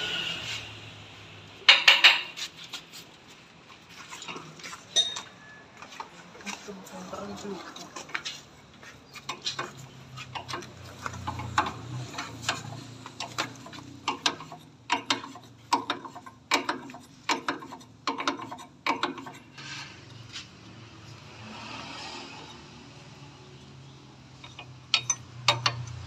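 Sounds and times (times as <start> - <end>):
hand tools clicking on metal: 9.1 - 19.4, 24.4 - 26.0.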